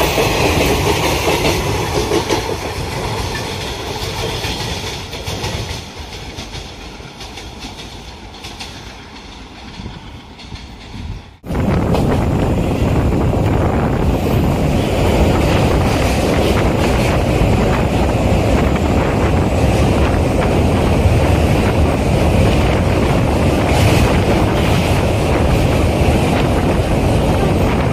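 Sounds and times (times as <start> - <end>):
moving train running noise: 0.0 - 27.9
wind buffeting microphone: 9.6 - 27.9.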